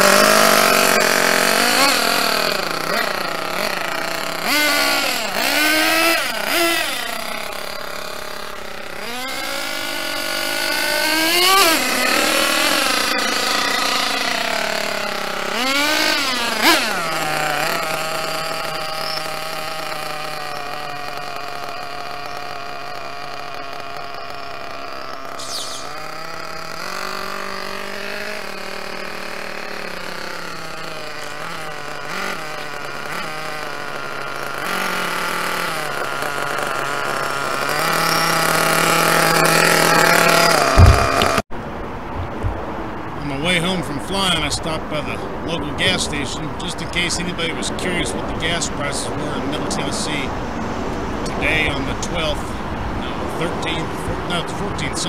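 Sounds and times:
small two-stroke engine revving: 0.0 - 41.5, 43.3 - 55.0.

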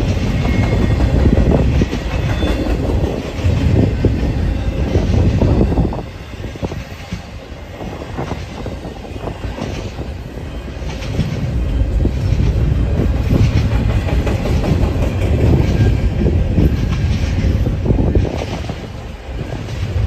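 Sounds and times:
freight train rumble: 0.0 - 20.0
train wheels clicking over rail joints: 0.0 - 20.0.

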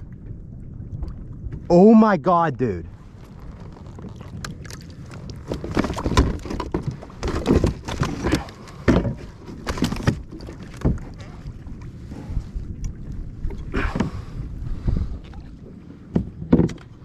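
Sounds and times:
knocks and rustles on plastic kayak: 3.0 - 12.6, 13.4 - 17.0.

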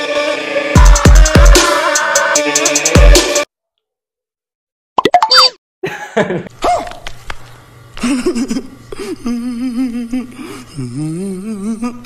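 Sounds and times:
laughter: 5.8 - 6.6, 8.0 - 9.4.

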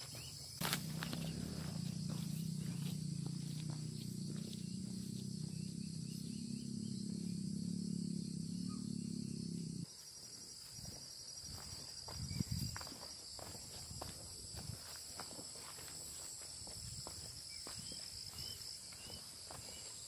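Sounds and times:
footsteps on dirt path: 0.0 - 5.3, 10.0 - 20.0
insects trilling: 0.0 - 20.0.

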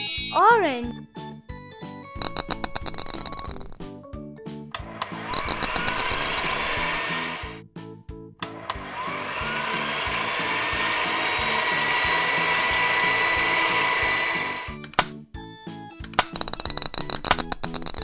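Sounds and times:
background music: 0.0 - 18.0
whirring blender-like machine: 4.8 - 7.6, 8.4 - 14.9.

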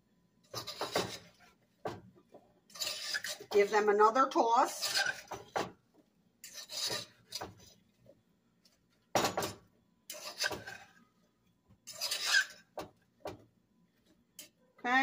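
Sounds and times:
spoon scraping and knocking a pot: 0.4 - 2.0, 2.7 - 3.7, 4.7 - 5.8, 6.4 - 7.7, 9.2 - 10.9, 11.8 - 13.4.

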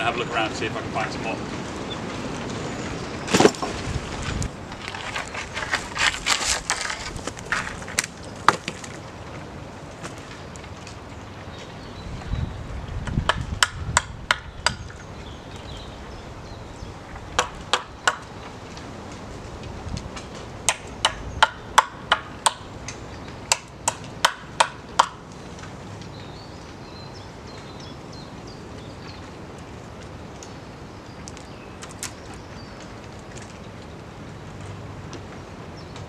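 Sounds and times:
blade chopping wood: 3.3 - 3.8.

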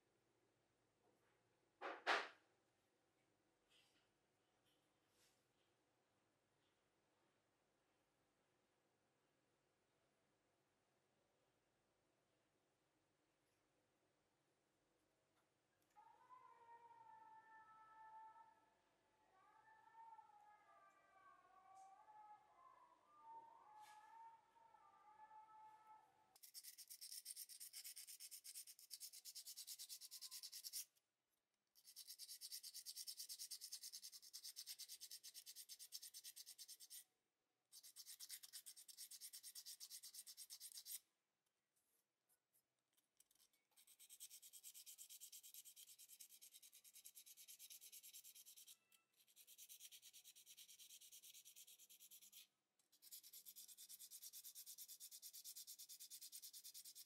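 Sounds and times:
sanding sponge scratching: 26.4 - 30.8, 31.8 - 37.0, 37.8 - 41.0, 43.8 - 52.4, 53.0 - 57.0.

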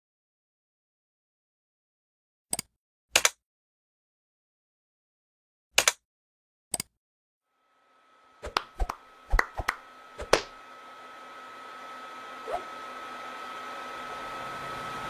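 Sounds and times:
fan air rush with whine: 7.5 - 15.0.

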